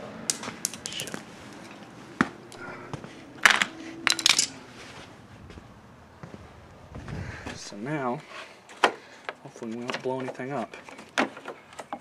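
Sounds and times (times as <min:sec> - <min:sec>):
hard objects clicking and clattering: 0:03.4 - 0:04.6.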